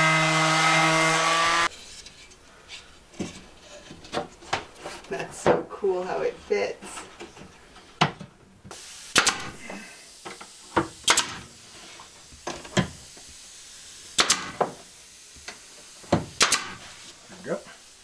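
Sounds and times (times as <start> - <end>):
nail gun shots: 9.1 - 9.6, 11.0 - 11.5, 14.1 - 14.7, 16.3 - 16.8.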